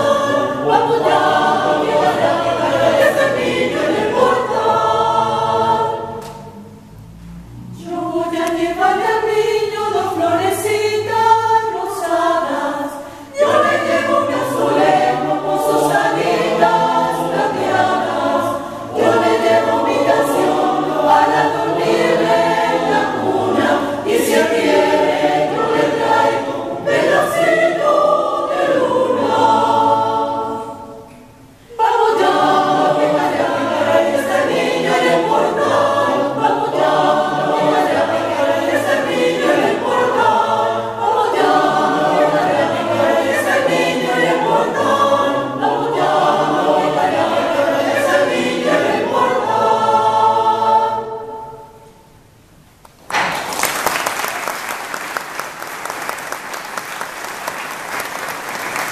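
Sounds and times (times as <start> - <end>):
choir singing in harmony: 0.0 - 52.2
audience applauding: 53.0 - 58.9.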